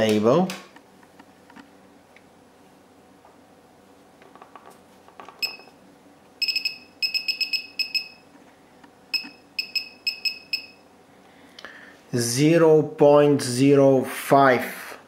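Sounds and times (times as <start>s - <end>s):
short high beeps: 5.4s - 5.7s, 6.4s - 8.2s, 9.1s - 10.8s.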